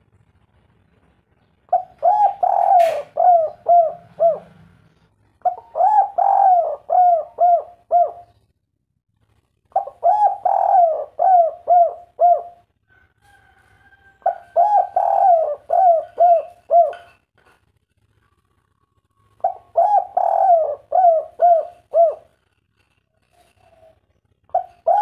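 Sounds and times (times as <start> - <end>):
dove cooing: 1.7 - 8.4, 9.7 - 12.7, 14.2 - 17.2, 19.2 - 25.0.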